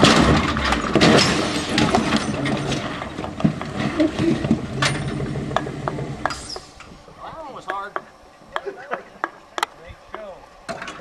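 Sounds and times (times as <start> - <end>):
engine running low: 0.0 - 7.1.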